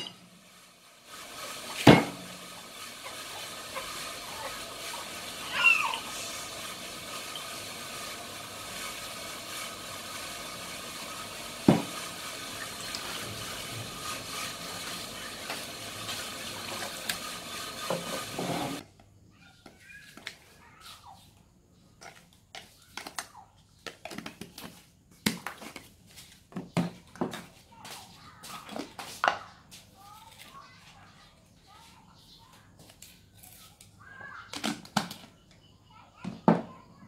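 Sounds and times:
steady hiss: 0:00.0 - 0:18.8.

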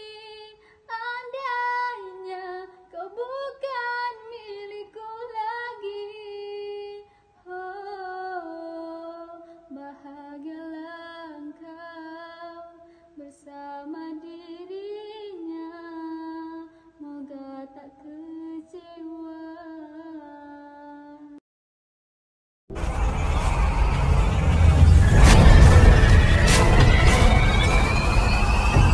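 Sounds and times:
woman singing into microphone: 0:00.0 - 0:21.4.

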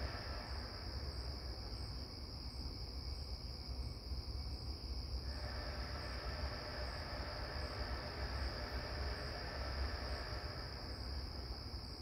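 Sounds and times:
night insects chorus: 0:00.0 - 0:12.0
low background rumble: 0:05.2 - 0:12.0.

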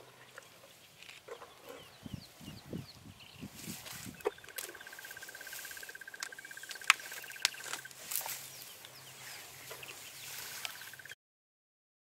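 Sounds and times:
sharp clicks: 0:04.2 - 0:08.0.

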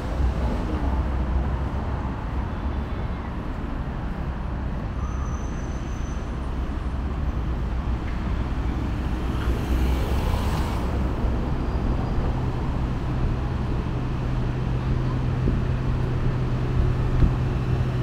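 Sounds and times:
vehicle rumble: 0:00.0 - 0:18.0.

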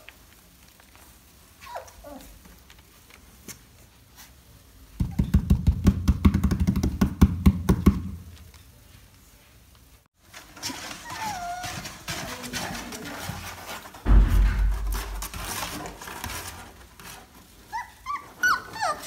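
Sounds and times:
puppy paws scrabbling on cardboard: 0:10.2 - 0:14.0, 0:14.6 - 0:19.0.

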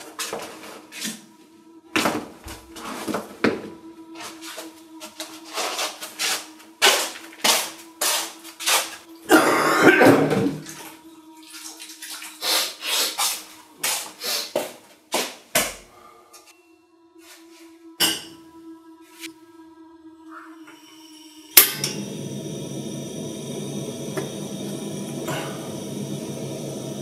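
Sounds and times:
slippers slapping on concrete: 0:13.2 - 0:15.8.

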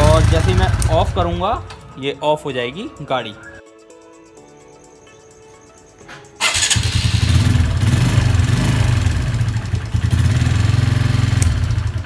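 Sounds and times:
motorcycle engine starting and running: 0:00.0 - 0:02.0, 0:06.4 - 0:12.0.

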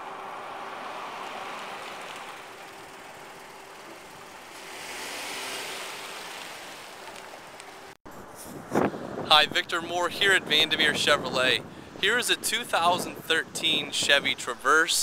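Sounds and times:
car driving past: 0:00.0 - 0:07.9.

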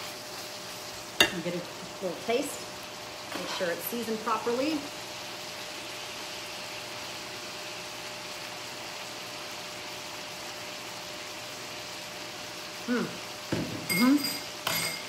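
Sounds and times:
meat sizzling in a skillet: 0:00.0 - 0:15.0.

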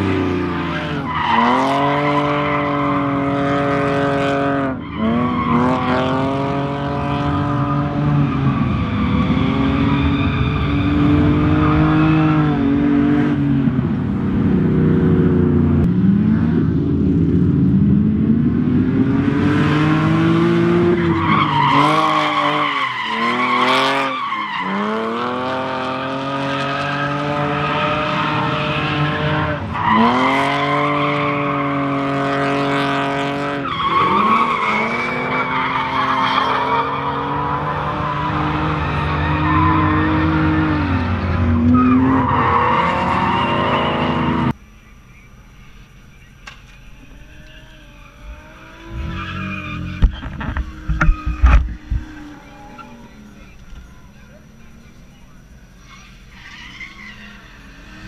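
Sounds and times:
car engine revving hard: 0:00.0 - 0:10.0, 0:18.2 - 0:44.6
tyres spinning and skidding: 0:00.0 - 0:15.0, 0:19.3 - 0:44.6, 0:45.9 - 0:58.0.

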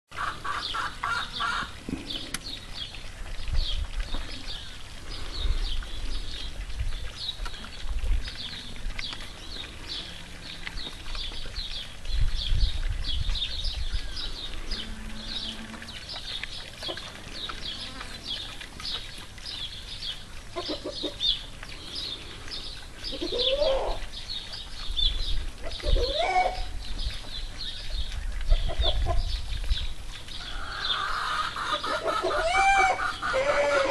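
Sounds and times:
small birds chirping: 0:00.2 - 0:32.4
low rumbles on microphone: 0:01.8 - 0:16.6.

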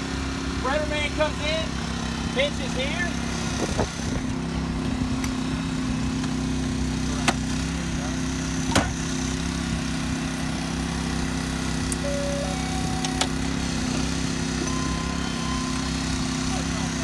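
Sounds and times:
small petrol engine running: 0:00.0 - 0:17.0.

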